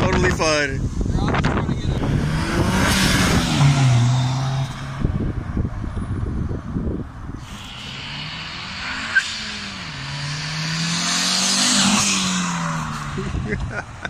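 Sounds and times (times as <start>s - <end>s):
car engine accelerating: 1.9s - 6.6s, 7.4s - 14.0s
turbo hiss: 7.4s - 10.4s.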